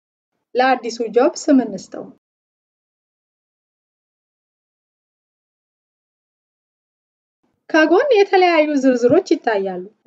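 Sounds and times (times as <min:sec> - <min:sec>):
woman speaking: 0:00.6 - 0:02.2, 0:07.7 - 0:10.0.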